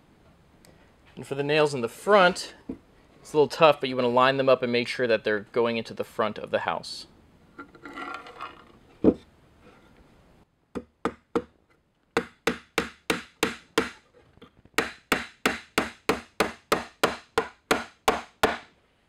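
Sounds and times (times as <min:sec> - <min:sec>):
hammer striking nails: 0:10.8 - 0:11.6, 0:12.2 - 0:14.0, 0:14.8 - 0:18.7.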